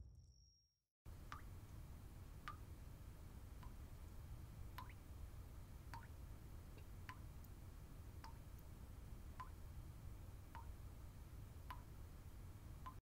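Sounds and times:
water dripping: 1.1s - 2.8s, 3.4s - 5.1s, 5.9s - 10.9s, 11.5s - 12.0s, 12.7s - 13.0s
faint low hum: 1.1s - 13.0s.

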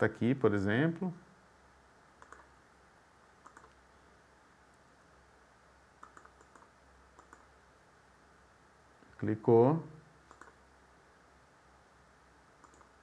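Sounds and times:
low steady hum: 0.0s - 13.0s
computer mouse clicks: 2.2s - 2.5s, 3.4s - 3.8s, 6.0s - 7.5s, 10.3s - 10.6s, 12.6s - 13.0s.

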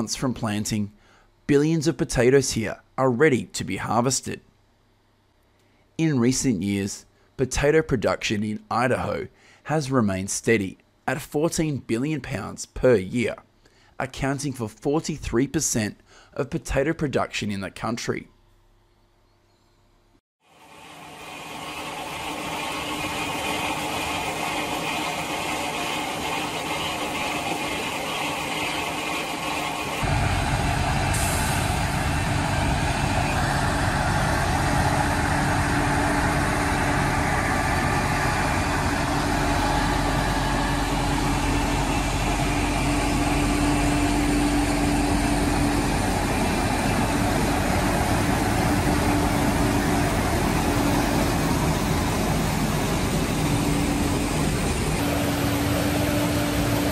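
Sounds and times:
steady hum: 20.6s - 56.9s
tractor engine and machinery: 20.6s - 56.9s.

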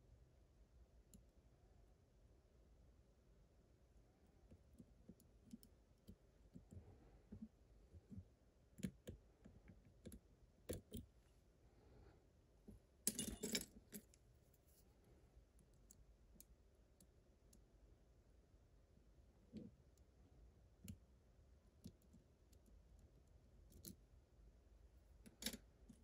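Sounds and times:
metal tools clattering: 13.1s - 13.7s
lock picks clicking and scraping: 13.1s - 14.2s, 25.2s - 26.0s.

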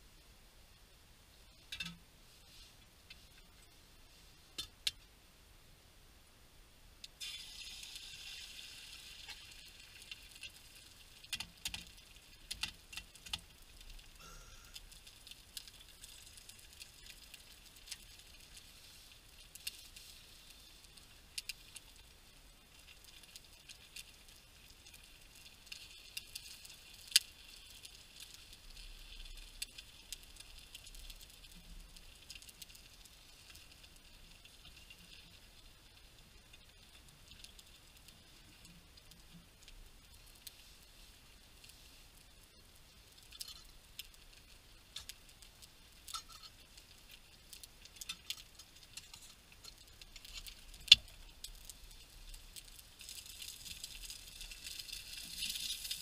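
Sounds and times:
eggs sizzling in frying pan: 7.0s - 56.0s
small clicks: 11.2s - 18.7s, 43.1s - 56.0s.

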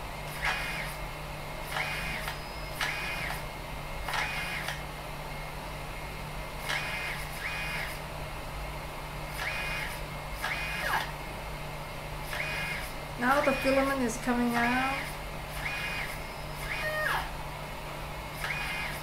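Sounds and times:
steady low hum: 0.0s - 19.0s
stepper motor whine: 0.0s - 19.0s
motor click: 0.3s - 1.0s, 1.7s - 3.4s, 4.0s - 4.8s, 6.6s - 8.0s, 9.3s - 11.1s, 12.3s - 17.3s, 18.4s - 19.0s.

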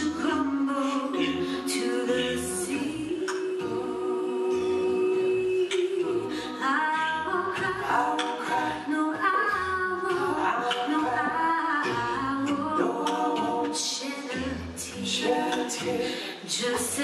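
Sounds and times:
a cappella group singing harmony: 0.0s - 17.0s.

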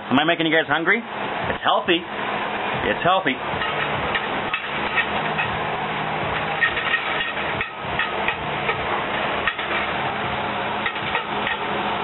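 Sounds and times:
fork scraping skillet: 3.5s - 10.0s.

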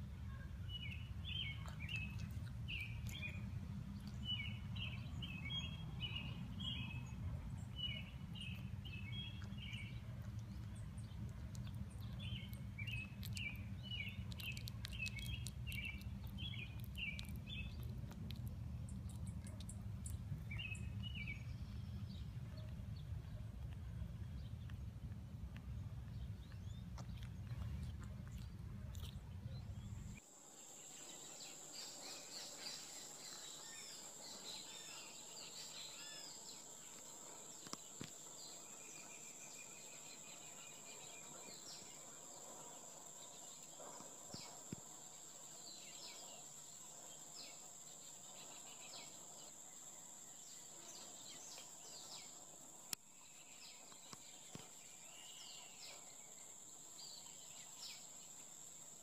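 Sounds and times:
low rumbling noise: 0.0s - 30.2s.

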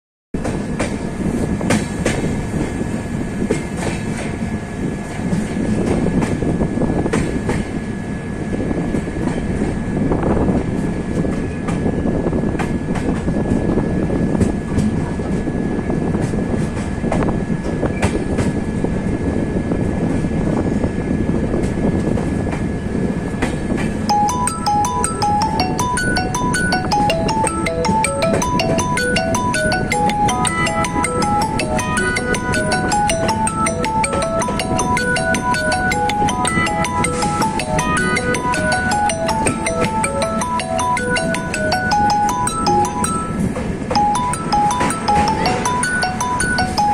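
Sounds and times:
train wheels rumbling on rails: 0.4s - 46.9s.

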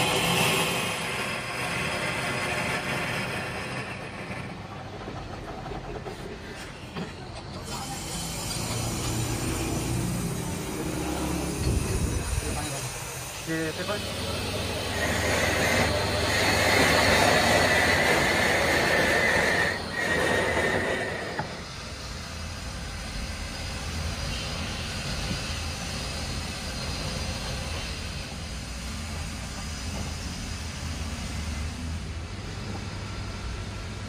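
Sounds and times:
grinding screech with high squeal: 7.6s - 21.8s.

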